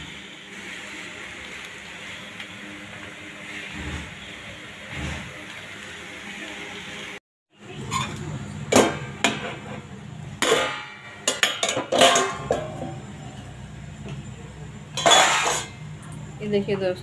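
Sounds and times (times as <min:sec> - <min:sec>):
metal lid and pan clinking: 0:10.4 - 0:13.0, 0:14.9 - 0:15.8.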